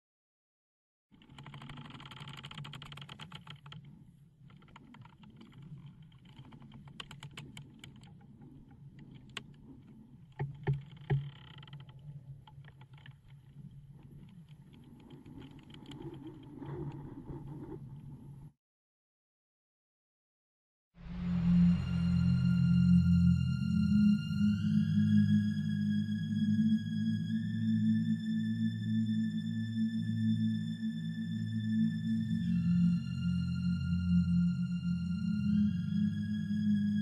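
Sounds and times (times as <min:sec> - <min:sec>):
clicking and crackling: 0:01.1 - 0:18.4
low steady drone: 0:21.0 - 0:37.0.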